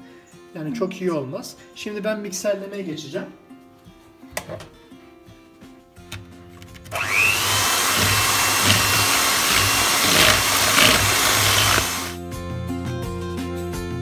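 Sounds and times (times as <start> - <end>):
electric hand mixer whisking: 6.9 - 12.2.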